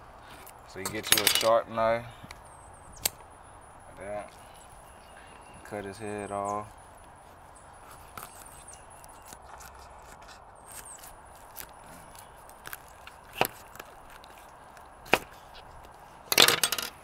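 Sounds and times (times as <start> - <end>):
crunching: 7.0 - 17.0.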